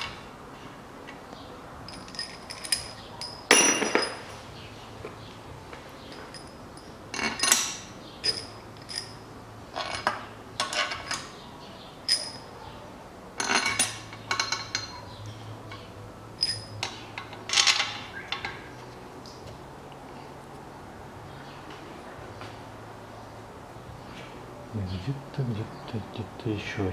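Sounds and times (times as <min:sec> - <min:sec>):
bolts clinking against metal: 0:01.1 - 0:04.4, 0:06.0 - 0:11.4, 0:12.0 - 0:12.6, 0:13.4 - 0:19.4.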